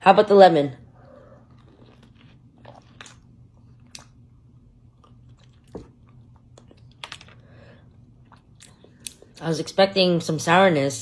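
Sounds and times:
person chewing lemon: 1.1s - 9.4s.

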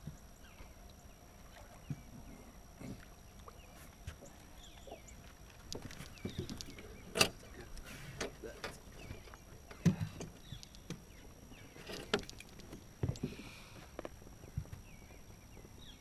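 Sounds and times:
knocks and thumps in boat: 5.6s - 11.1s.

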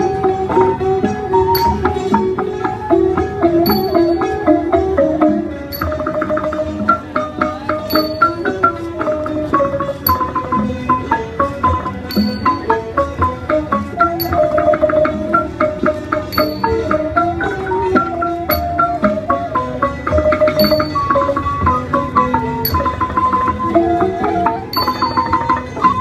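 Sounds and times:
quick zither notes: 0.0s - 2.8s, 5.4s - 19.3s
bamboo flute: 0.0s - 26.0s
bowed fiddles: 0.0s - 26.0s.

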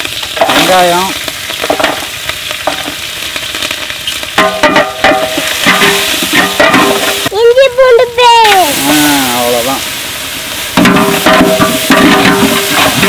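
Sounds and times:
onions sizzling in hot oil: 0.0s - 13.0s
metal ladle clattering and scraping: 4.4s - 7.3s, 10.8s - 13.0s.

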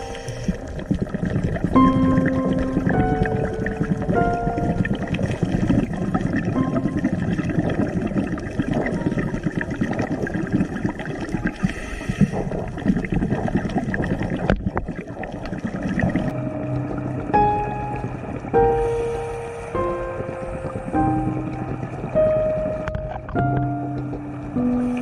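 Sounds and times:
underwater crackling of fish: 0.0s - 25.0s
music with steady tones: 16.3s - 25.0s.

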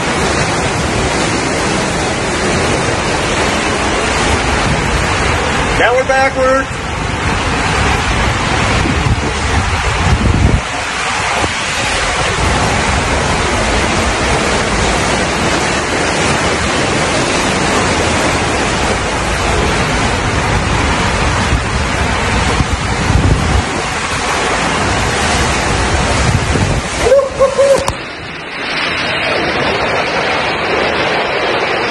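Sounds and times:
air buffeting microphone: 0.0s - 31.9s
running water in slide tube: 0.0s - 31.9s
low rumble: 6.6s - 31.9s.

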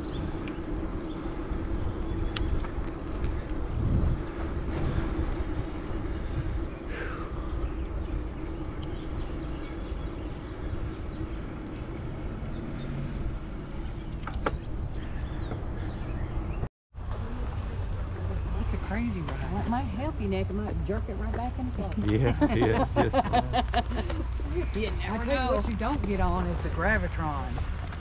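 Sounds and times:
steady low hum: 0.0s - 16.5s
wind rushing over microphone: 0.0s - 16.6s.

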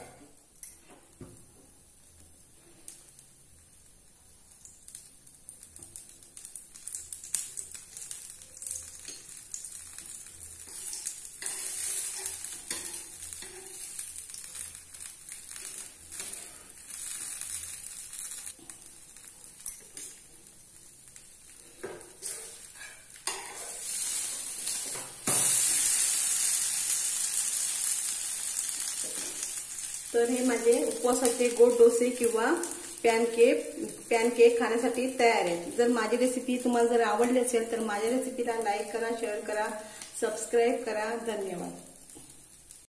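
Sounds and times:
batter sizzling on a pan: 1.0s - 42.9s
spatula scraping a pan: 10.6s - 18.6s, 21.8s - 26.1s.

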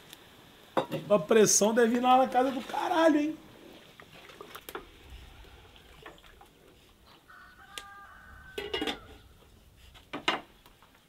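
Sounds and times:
chickens calling: 6.9s - 10.6s.

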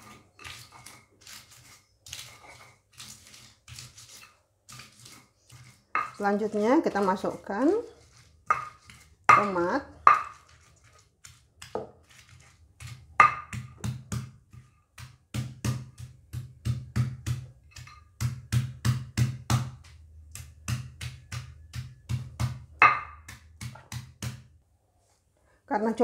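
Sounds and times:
stone pestle pounding in mortar: 3.7s - 7.5s, 8.1s - 24.5s.

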